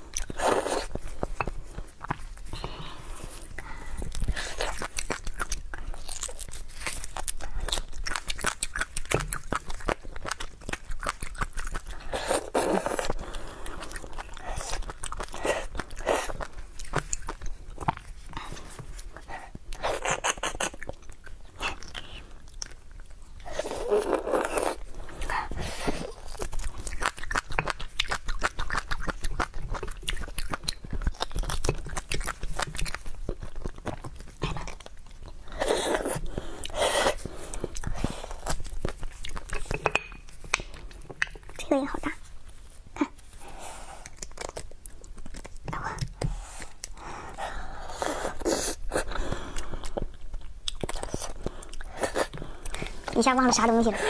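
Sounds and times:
person chewing bones: 0.0s - 43.4s, 44.0s - 54.0s.

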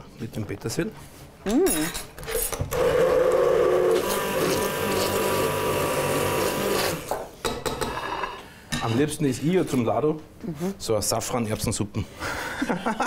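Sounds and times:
immersion blender running: 2.7s - 7.2s.

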